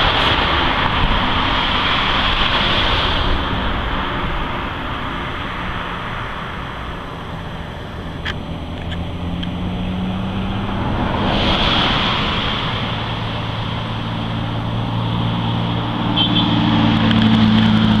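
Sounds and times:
low engine rumble: 0.0s - 18.0s.

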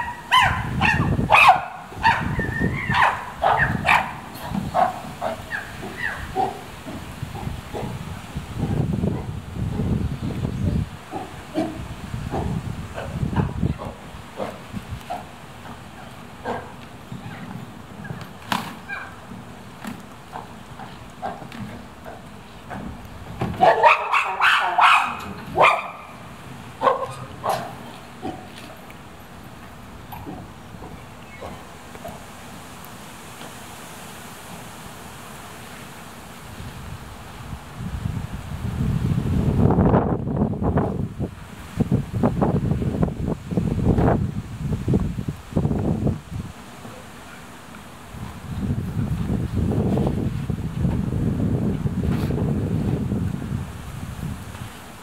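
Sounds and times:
chimpanzee calling: 0.0s - 8.0s, 18.8s - 19.2s, 23.6s - 26.2s.

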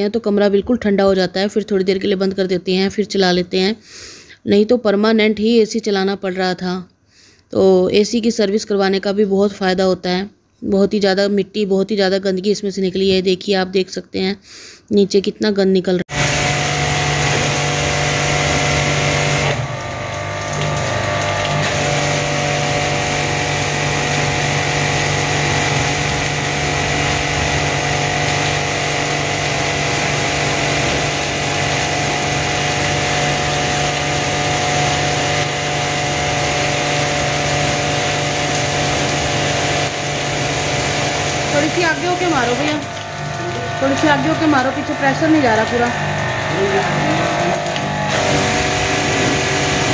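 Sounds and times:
pressure washer pump hum: 16.1s - 49.9s
water jet hissing: 16.1s - 49.9s.

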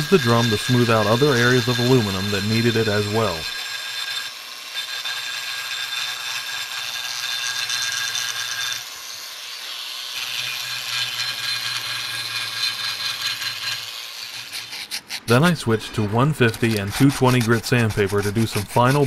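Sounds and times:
rotary tool sanding metal: 0.0s - 19.0s.

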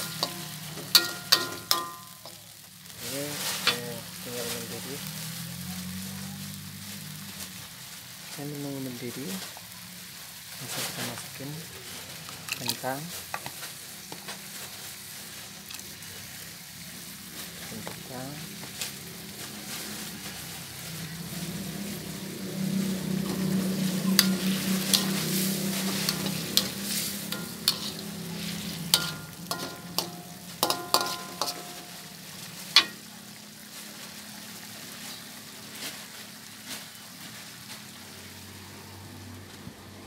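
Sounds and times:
metal spoon clinking on wok: 0.0s - 2.4s, 23.2s - 31.9s, 32.8s - 33.0s
food hissing on stove: 0.0s - 39.5s.

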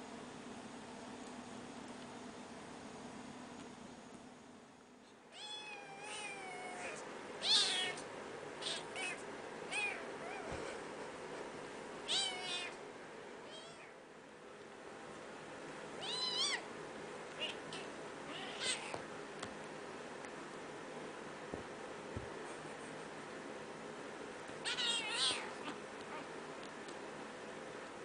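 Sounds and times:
cat meowing: 5.3s - 8.0s, 12.1s - 12.8s, 16.0s - 16.6s, 17.4s - 19.0s, 24.6s - 26.3s.

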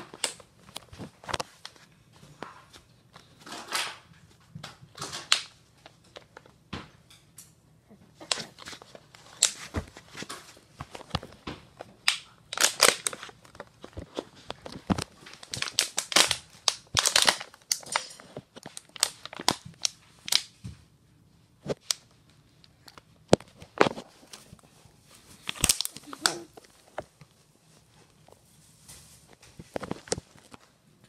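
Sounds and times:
plastic bottle crinkling: 8.2s - 20.5s, 25.3s - 27.2s.

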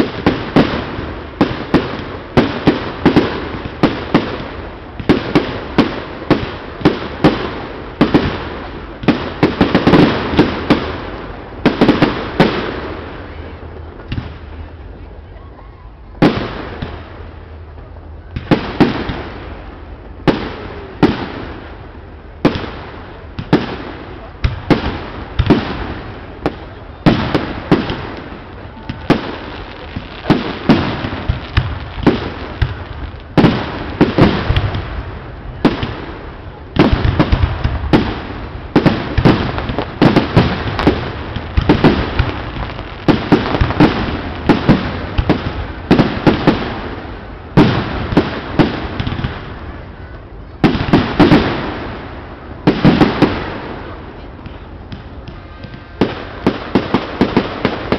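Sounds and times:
rumble and crackle: 21.6s - 57.9s.

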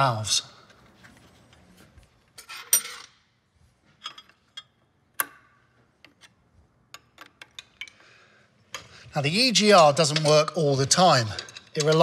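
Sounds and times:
metal tools clinking: 9.6s - 12.0s.

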